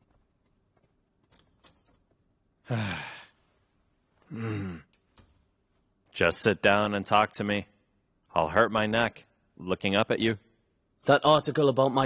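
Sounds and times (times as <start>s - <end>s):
man sighing: 2.6s - 3.5s, 4.2s - 5.0s.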